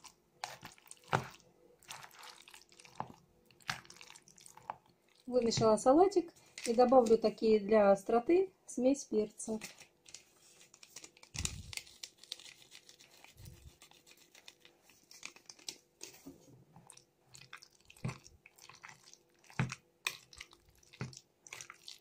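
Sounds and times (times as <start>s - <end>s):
foil sachet crinkling: 9.6s - 16.2s.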